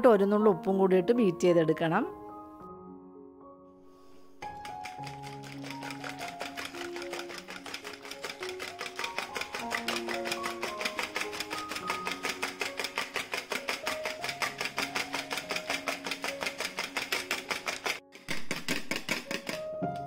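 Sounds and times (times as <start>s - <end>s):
soft background music: 0.0s - 20.0s
whisk clicking against bowl: 4.4s - 20.0s.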